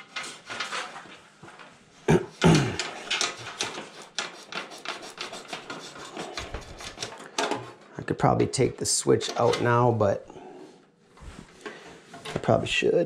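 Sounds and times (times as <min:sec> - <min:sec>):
cables rubbing and clicking: 0:02.7 - 0:07.8.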